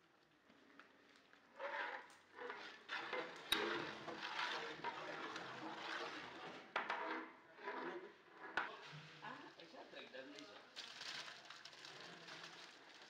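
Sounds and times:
ladle stirring thick gravy: 0:01.3 - 0:08.9.

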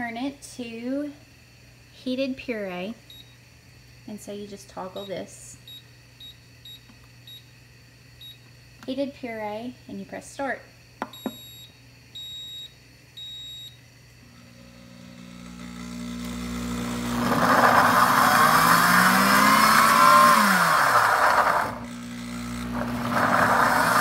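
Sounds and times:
blender beep: 0:11.1 - 0:13.8, 0:14.4 - 0:24.0
blender motor chopping vegetables: 0:14.3 - 0:24.0.

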